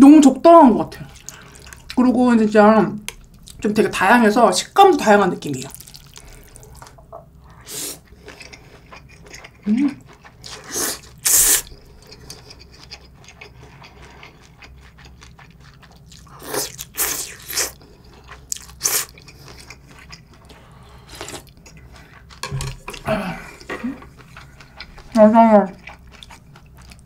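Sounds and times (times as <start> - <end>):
crunchy chewing: 5.7 - 7.0, 8.0 - 27.0
loud noodle slurps: 10.5 - 11.7.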